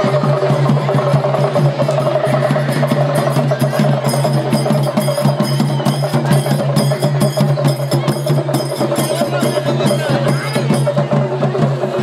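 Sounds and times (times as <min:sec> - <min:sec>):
fast drum strokes: 0:00.0 - 0:12.0.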